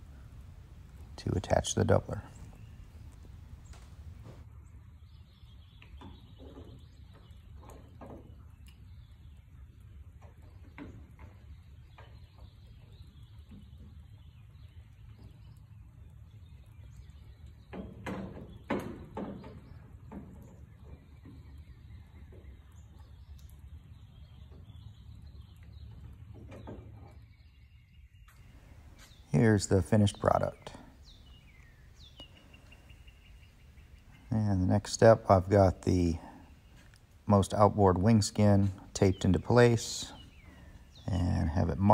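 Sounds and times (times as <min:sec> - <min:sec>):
low steady hum: 0:00.0 - 0:05.1.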